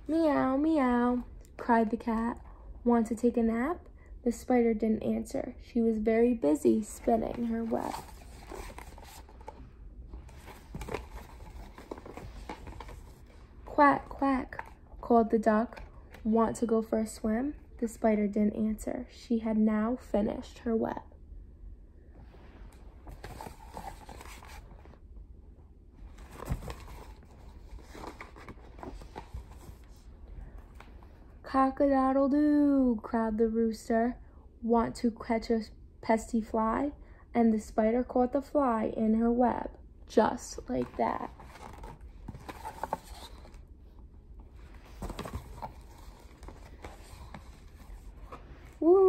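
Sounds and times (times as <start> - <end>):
book pages rustling: 6.8 - 14.8, 22.6 - 25.0, 26.0 - 31.2, 40.6 - 43.7, 44.4 - 48.8.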